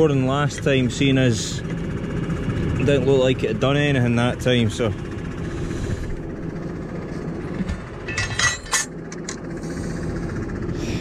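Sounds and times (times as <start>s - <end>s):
tractor engine idling: 0.0s - 11.0s
metallic clinks and knocks: 8.0s - 9.4s.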